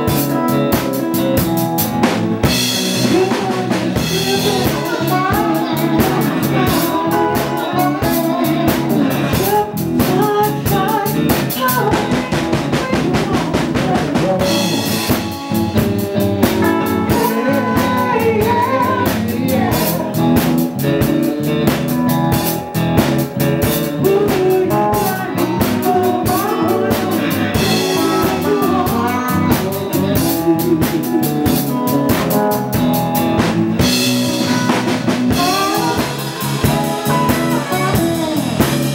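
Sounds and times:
drum kit beating: 0.0s - 38.9s
electric guitar: 0.0s - 38.9s
person singing: 0.0s - 38.9s.

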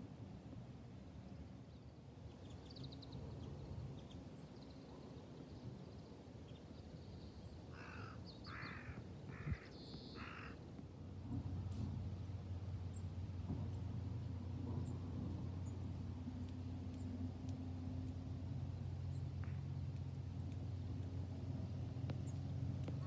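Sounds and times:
low background rumble: 0.0s - 23.0s
crow cawing: 7.7s - 10.6s.

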